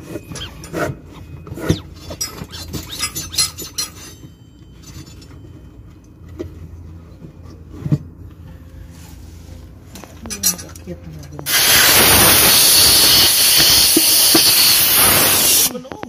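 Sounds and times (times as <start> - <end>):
metal clinks and knocks: 0.0 - 8.2.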